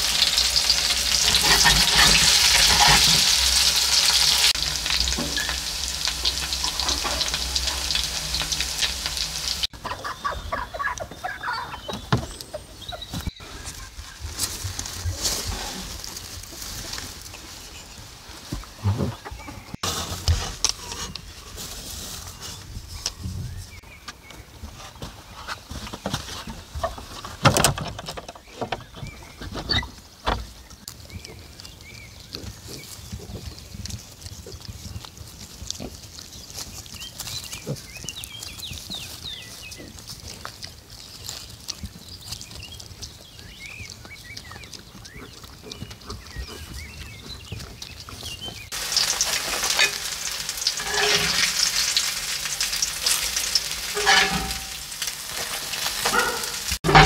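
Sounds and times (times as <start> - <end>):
crackly scrape: 0.0 - 9.7, 12.3 - 57.0
pancakes sizzling in oil: 0.0 - 9.7, 48.6 - 57.0
hens clucking: 0.5 - 19.8, 43.8 - 57.0.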